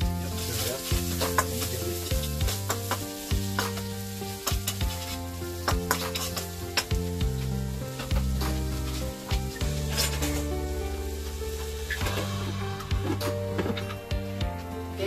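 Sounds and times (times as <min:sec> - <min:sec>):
onions sizzling in oil: 0:00.0 - 0:15.0
spatula scraping a pan: 0:00.3 - 0:07.0, 0:08.0 - 0:10.5.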